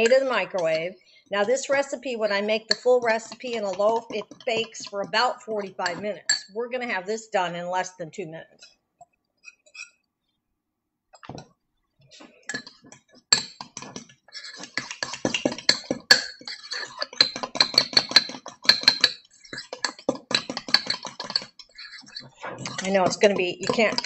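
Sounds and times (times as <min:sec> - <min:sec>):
utensil clinking in ceramic cup: 0:13.4 - 0:24.0.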